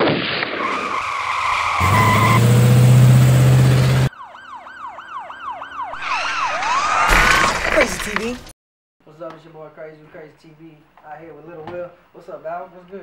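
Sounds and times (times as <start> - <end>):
repeated swooping tones: 5.9 - 7.1.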